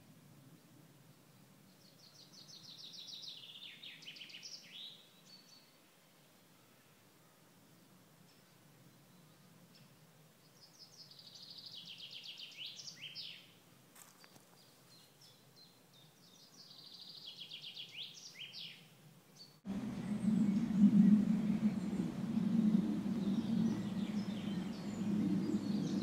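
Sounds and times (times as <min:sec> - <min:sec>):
faint woodland background: 0:00.0 - 0:26.0
songbird singing: 0:00.4 - 0:07.4, 0:08.2 - 0:26.0
loud steady low rumble: 0:19.7 - 0:26.0.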